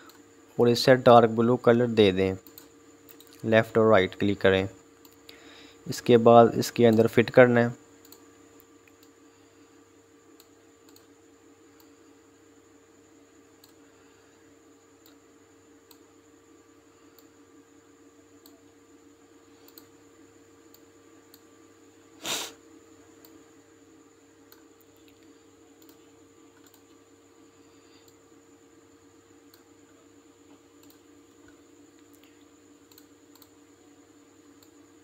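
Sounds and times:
electrical hum: 0.0s - 35.0s
computer mouse clicks: 2.4s - 3.4s, 6.9s - 7.1s, 8.0s - 9.2s, 10.4s - 11.1s, 13.6s - 13.8s, 19.6s - 19.9s, 24.5s - 27.0s, 30.8s - 33.6s.

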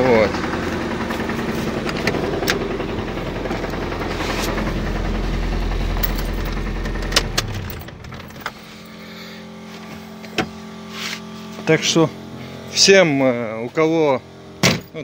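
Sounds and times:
engine crackling: 0.0s - 11.0s
car engine idling: 0.0s - 15.0s.

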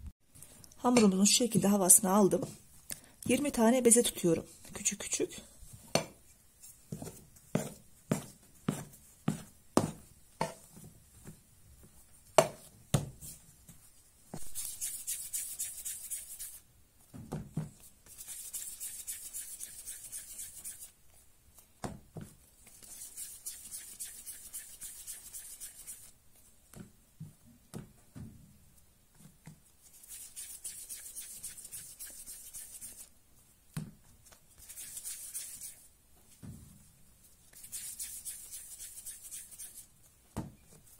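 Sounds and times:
hands rolling dough: 5.8s - 28.2s, 29.1s - 36.4s.

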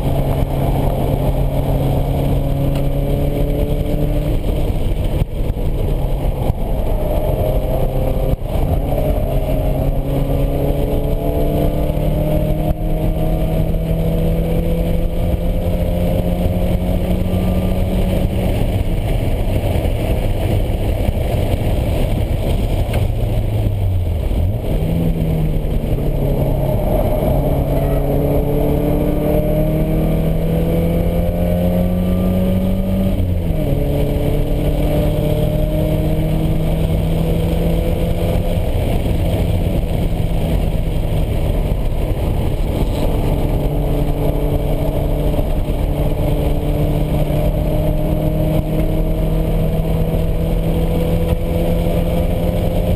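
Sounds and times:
car engine revving: 0.0s - 52.9s
wind and road noise: 0.0s - 52.9s.

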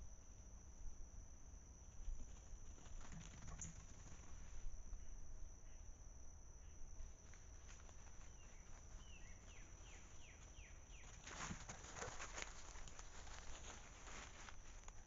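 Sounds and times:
high-pitched insect chorus: 0.0s - 15.0s.

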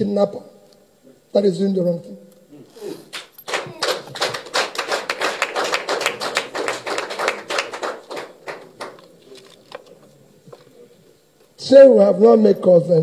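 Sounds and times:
group of people clapping: 3.1s - 9.2s.

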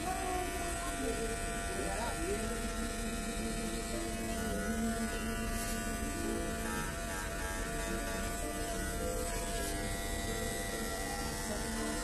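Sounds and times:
hair clippers buzzing: 3.1s - 12.0s.

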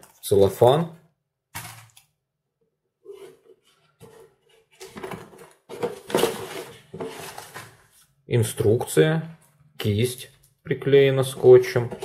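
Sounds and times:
plastic and paper rustling: 3.1s - 8.2s.

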